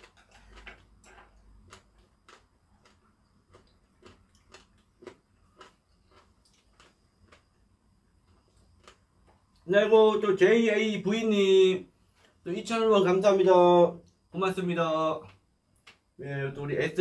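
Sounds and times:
crunchy chewing: 0.0s - 9.7s.

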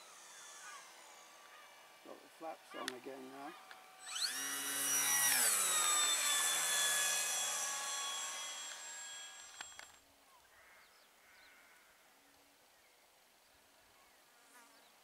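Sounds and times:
model airplane motor whine: 0.0s - 10.0s.

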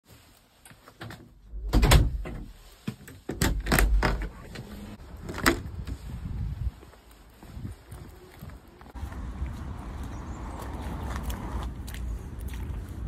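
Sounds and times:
footsteps on tiled floor: 4.6s - 13.0s.

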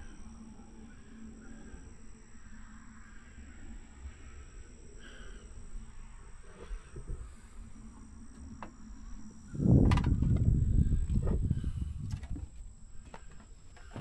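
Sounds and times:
insect trilling: 0.0s - 14.0s
wind rumble on microphone: 9.4s - 12.8s.

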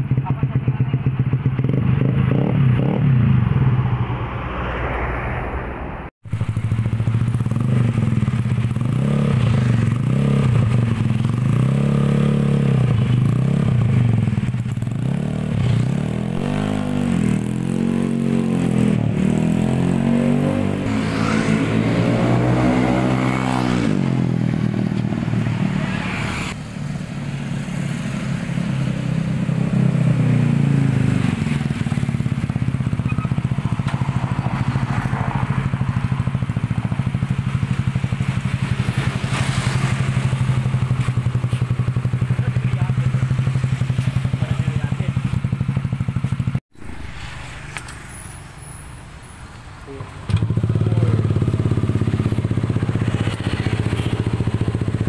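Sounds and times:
scooter engine idling: 0.0s - 1.6s, 6.3s - 8.9s, 40.1s - 46.6s, 49.8s - 55.0s
scooter engine revving: 0.0s - 3.9s, 6.3s - 26.6s, 28.4s - 49.0s, 49.9s - 55.0s.

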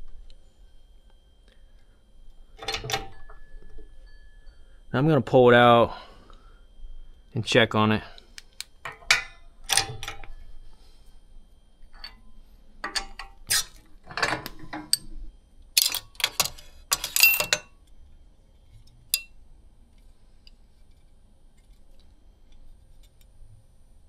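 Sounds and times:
metal parts clinking and knocking: 2.6s - 3.8s, 8.7s - 10.4s, 11.9s - 15.2s, 15.8s - 17.8s.

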